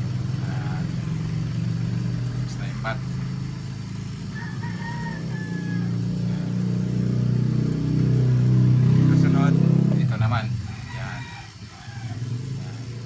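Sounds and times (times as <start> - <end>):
low mechanical hum: 0.0 - 13.0
rooster crowing: 3.5 - 9.4, 10.1 - 13.0.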